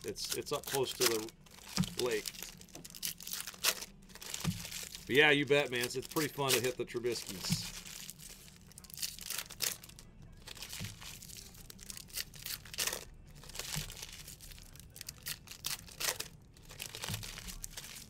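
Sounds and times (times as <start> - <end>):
card pack wrappers tearing: 0.0 - 18.0.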